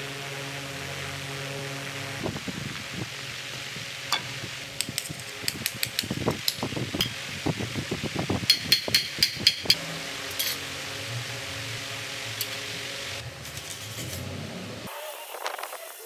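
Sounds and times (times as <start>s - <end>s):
hammer striking steel: 8.5s - 10.6s
steel parts clinking: 8.5s - 10.6s.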